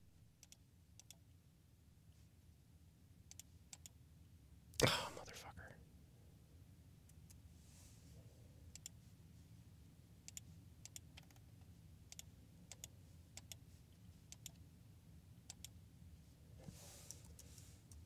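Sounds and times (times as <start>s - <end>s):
computer mouse clicks: 0.4s - 1.2s, 3.3s - 4.0s, 8.7s - 9.0s, 10.3s - 11.4s, 12.1s - 13.6s, 14.3s - 14.6s, 15.4s - 15.8s, 17.0s - 18.0s.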